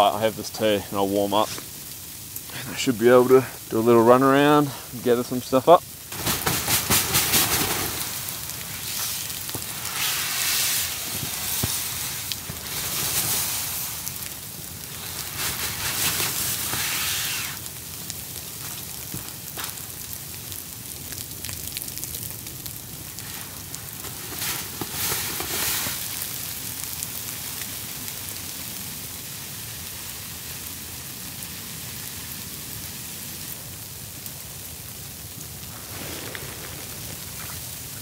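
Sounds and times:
sleet pattering: 6.1s - 17.7s.

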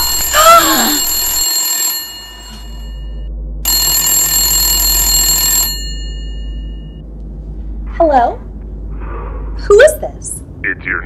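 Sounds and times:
telephone ringing: 0.0s - 7.0s.

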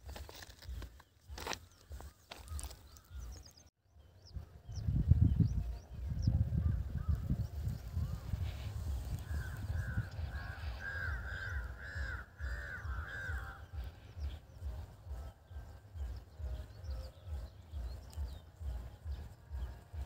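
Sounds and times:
low pulsing rumble: 4.0s - 20.0s.

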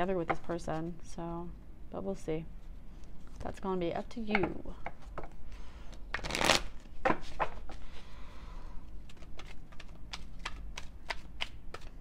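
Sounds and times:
cards being shuffled: 5.9s - 7.8s, 9.0s - 12.0s.

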